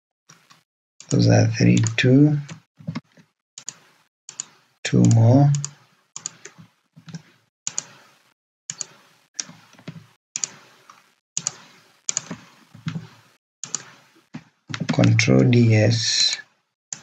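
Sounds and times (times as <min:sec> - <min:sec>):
mouse and keyboard clicking: 0:01.8 - 0:08.0, 0:08.7 - 0:09.6, 0:10.4 - 0:13.0, 0:13.6 - 0:13.9.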